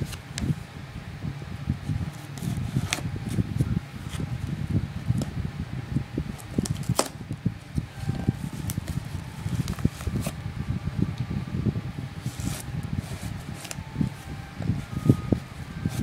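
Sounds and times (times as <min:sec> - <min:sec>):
hands handling cardboard box: 0:02.1 - 0:04.3, 0:06.4 - 0:07.2, 0:07.8 - 0:10.4, 0:12.2 - 0:16.0.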